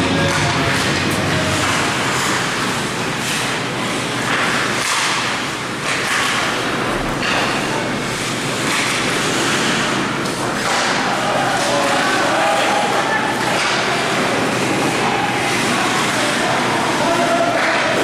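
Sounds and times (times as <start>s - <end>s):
hockey sticks and puck knocking: 4.2s - 7.6s, 8.2s - 11.0s.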